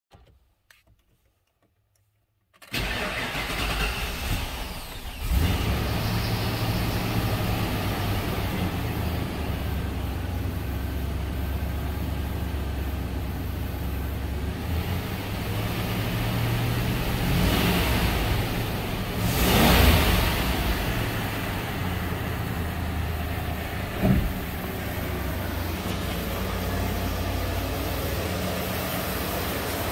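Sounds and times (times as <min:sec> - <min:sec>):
starter motor cranking: 0:02.6 - 0:05.4
car engine idling: 0:02.7 - 0:29.9.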